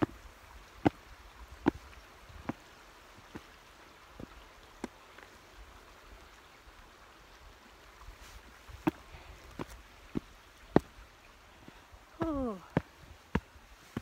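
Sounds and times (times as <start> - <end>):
footsteps on a path: 0.0 - 3.6, 8.0 - 14.0
faint wind hiss: 0.0 - 14.0.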